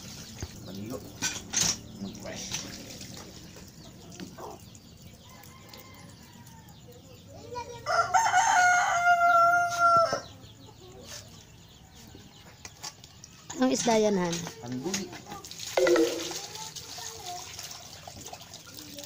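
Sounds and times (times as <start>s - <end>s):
rooster crowing: 7.9s - 10.2s.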